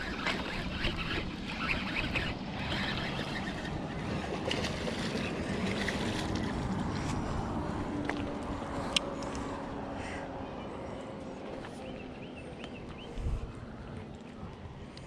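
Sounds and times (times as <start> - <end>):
lapping water: 0.0 - 9.6
wind noise on microphone: 13.0 - 15.0.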